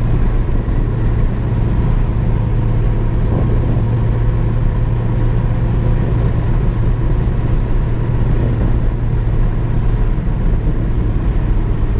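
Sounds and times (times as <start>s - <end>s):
vehicle engine and road drone: 0.0s - 11.9s.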